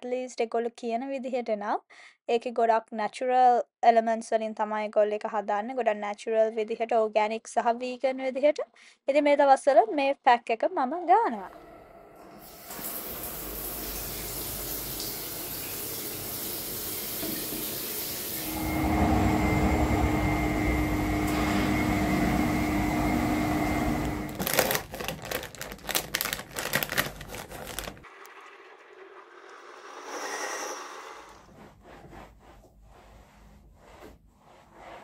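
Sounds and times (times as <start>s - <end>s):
water running: 11.5s - 31.6s
steady hum: 18.4s - 24.4s
irregular clicks and rustles: 24.3s - 28.1s.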